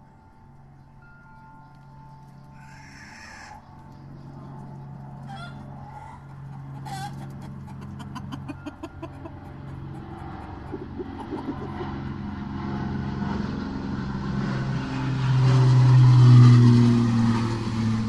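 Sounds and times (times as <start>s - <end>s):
chickens clucking and squawking: 5.2s - 12.2s
low steady hum: 8.3s - 18.0s.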